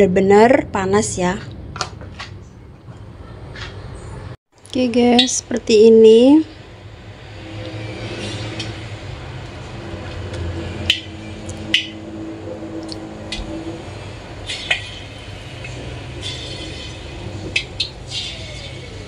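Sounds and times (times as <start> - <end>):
oil sizzling and bubbling: 6.6 - 18.6.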